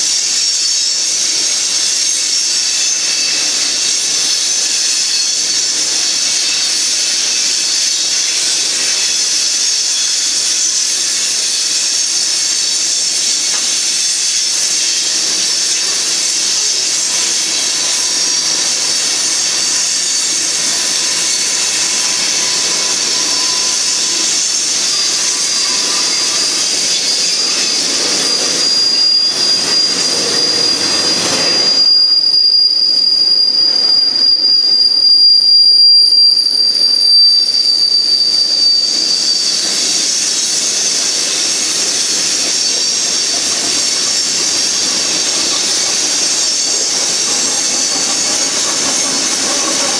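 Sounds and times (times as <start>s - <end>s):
high-pitched wheel squeal: 0.0s - 49.9s
train wheels rolling on rails: 0.0s - 49.9s.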